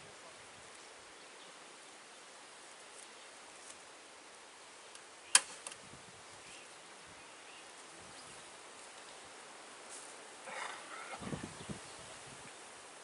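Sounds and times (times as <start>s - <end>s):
faint outdoor ambience: 0.0s - 13.0s
sharp click: 5.3s - 5.8s.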